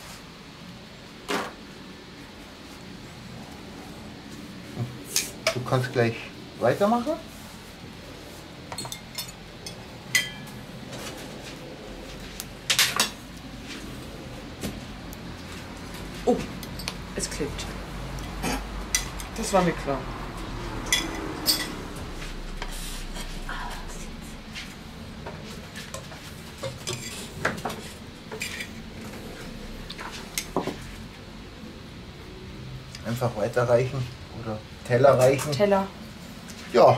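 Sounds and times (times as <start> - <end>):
tongs and cutlery clinking on plates: 8.7 - 10.6, 20.8 - 21.9.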